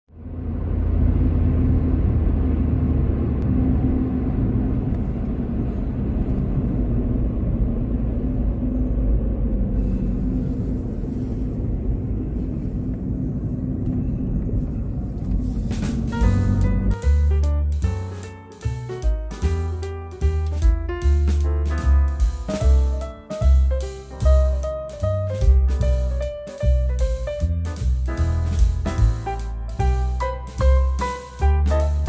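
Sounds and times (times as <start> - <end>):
constant low hum: 0.1 - 18.1
car driving rumble from inside: 0.2 - 31.0
music: 15.7 - 32.0.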